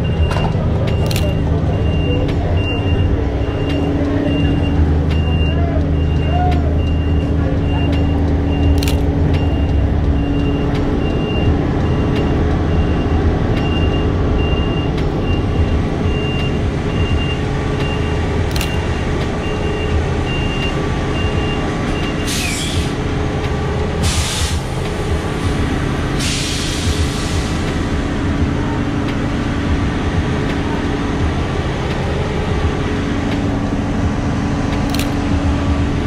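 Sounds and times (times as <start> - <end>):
high beep: 0.0 - 22.2
heavy vehicle engines: 0.0 - 36.0
air brake hisses: 22.2 - 23.0, 24.0 - 24.7, 26.2 - 27.8.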